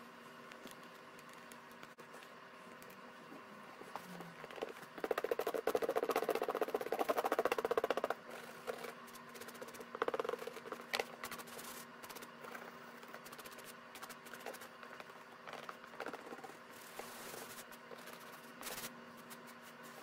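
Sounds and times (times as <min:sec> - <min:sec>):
rubbing and handling sounds: 0:03.8 - 0:20.0
toothbrush scrubbing leather: 0:05.0 - 0:15.1.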